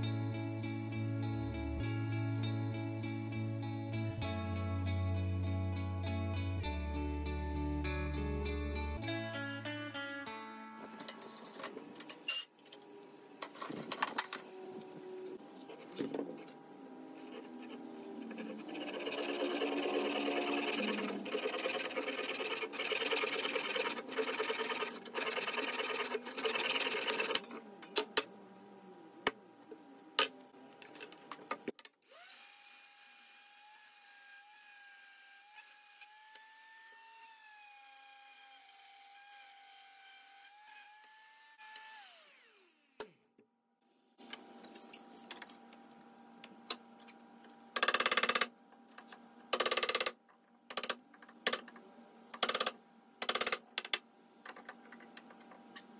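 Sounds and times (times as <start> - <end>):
hand saw cutting wood: 17.4 - 27.5
orbital sander whining: 18.1 - 27.3.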